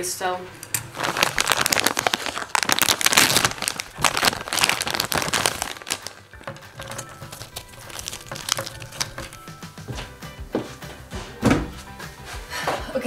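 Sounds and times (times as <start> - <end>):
plastic packaging crinkling: 0.8 - 9.5.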